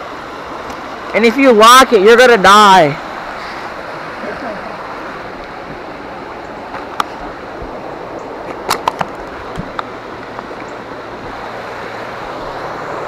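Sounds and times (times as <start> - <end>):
creek water rushing: 0.0 - 13.0
sharp clicks and knocks: 8.5 - 10.7.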